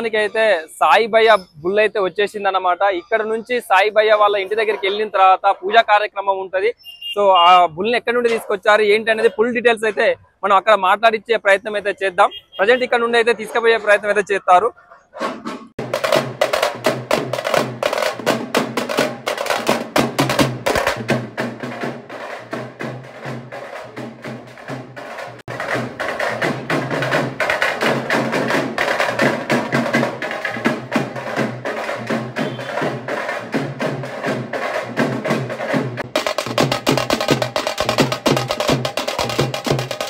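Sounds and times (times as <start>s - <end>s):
drums beaten with sticks: 15.8s - 40.0s.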